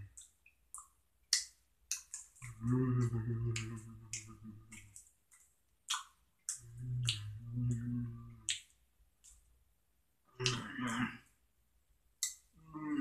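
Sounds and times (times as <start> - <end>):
man chewing with wet smacks: 0.0 - 9.6, 10.4 - 11.1, 12.2 - 12.6
man humming: 2.4 - 4.9, 6.6 - 8.5, 10.4 - 11.2, 12.7 - 13.0.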